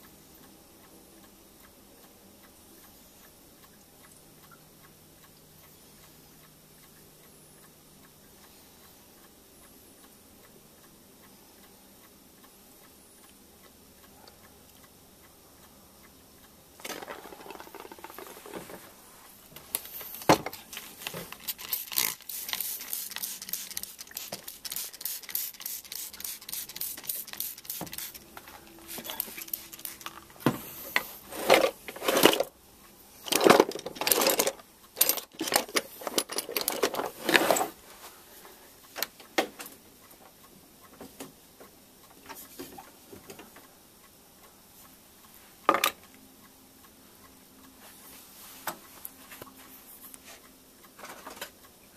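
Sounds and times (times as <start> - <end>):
small hard objects clicking: 16.8 - 18.6, 19.7 - 28.2.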